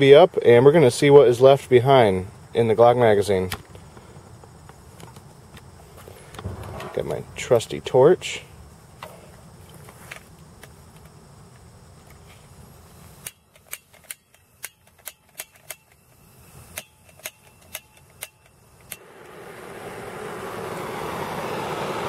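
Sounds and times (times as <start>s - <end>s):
gas torch igniter clicking: 13.1s - 19.4s.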